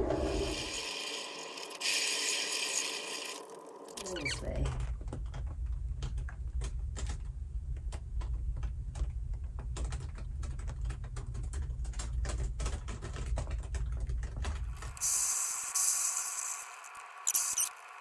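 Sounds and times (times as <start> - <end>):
steady hiss: 14.9 - 18.0.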